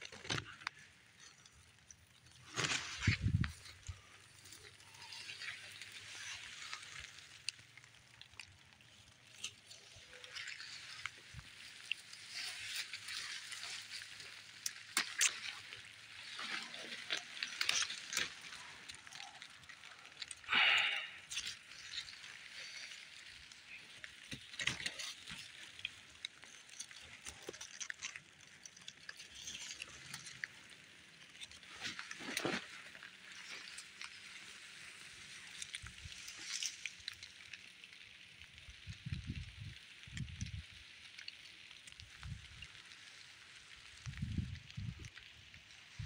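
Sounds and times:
leaves and stems rustling: 0:00.0 - 0:46.0
brush against bushes: 0:02.4 - 0:07.3.

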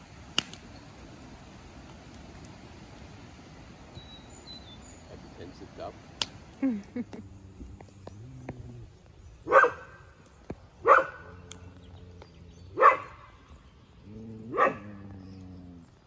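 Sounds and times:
dog barking: 0:09.4 - 0:10.0, 0:10.8 - 0:11.5, 0:12.7 - 0:13.3, 0:14.5 - 0:15.1.

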